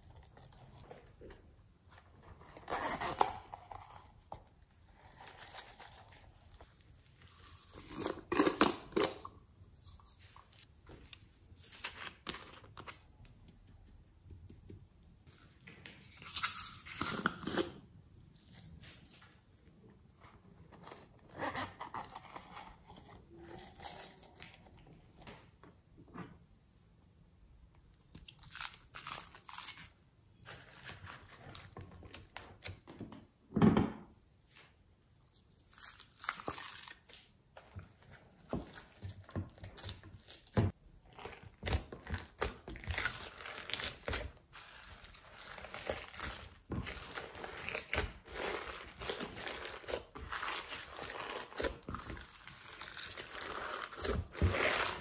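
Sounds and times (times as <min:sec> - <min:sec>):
slime squishing: 0:35.5 - 0:55.0.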